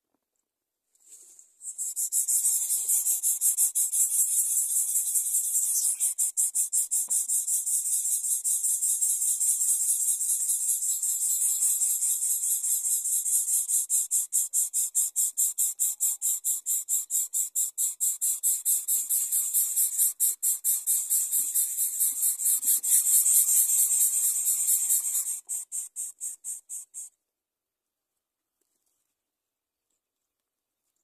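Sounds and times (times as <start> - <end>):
insect trilling: 1.6 - 27.1.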